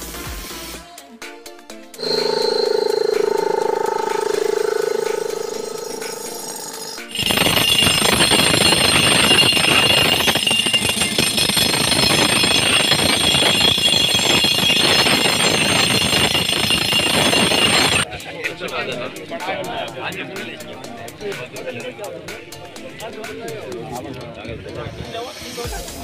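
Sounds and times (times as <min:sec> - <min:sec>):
pneumatic rock drill hammering: 0:06.4 - 0:18.0.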